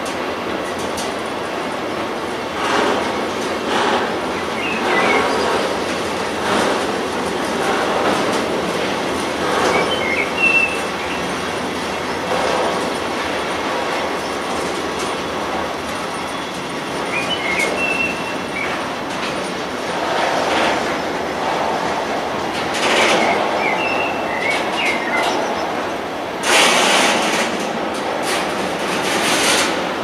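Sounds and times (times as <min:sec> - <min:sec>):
train wheels clattering over joints: 0:00.0 - 0:30.0
high wheel squeals: 0:09.5 - 0:13.0, 0:15.1 - 0:19.8, 0:22.8 - 0:25.8.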